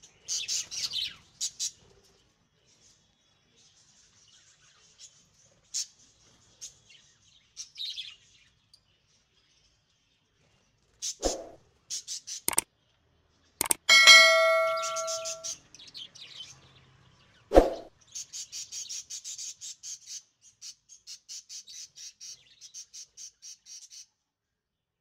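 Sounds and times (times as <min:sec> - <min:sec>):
quick clicks: 0:13.6 - 0:13.9
bell ding: 0:13.6 - 0:15.5.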